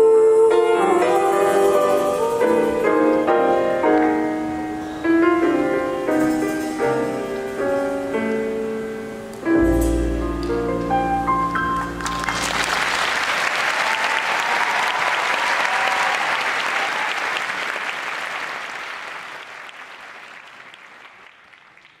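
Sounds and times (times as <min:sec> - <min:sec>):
audience applauding: 0:11.6 - 0:22.0.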